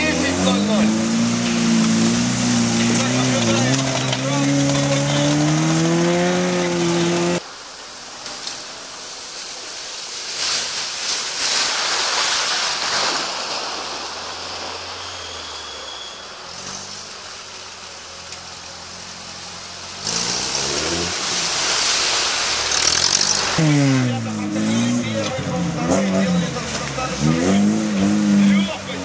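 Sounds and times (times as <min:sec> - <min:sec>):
engine revving: 0:00.0 - 0:07.4, 0:18.8 - 0:29.0.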